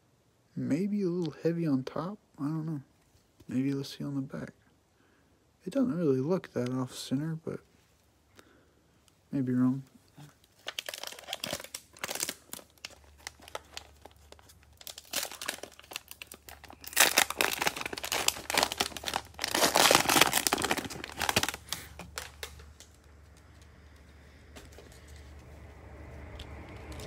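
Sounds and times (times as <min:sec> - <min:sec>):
plastic wrapper crinkling and tearing: 0:10.2 - 0:23.6.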